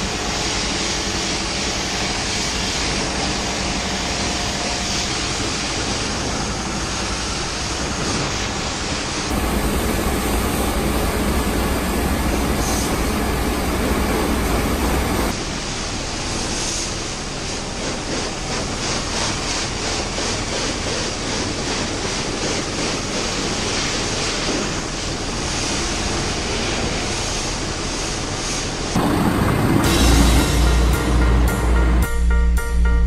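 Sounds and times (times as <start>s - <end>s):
pressure washer spraying: 9.3s - 15.3s, 17.5s - 31.8s.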